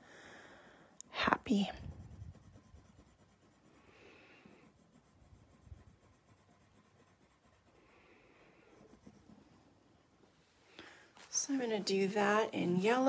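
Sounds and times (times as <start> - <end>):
pencil scratching on paper: 1.2 - 10.2.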